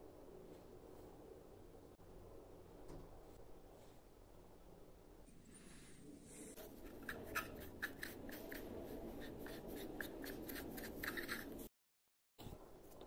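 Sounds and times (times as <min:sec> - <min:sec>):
hand rubbing wooden block: 0:06.6 - 0:11.7.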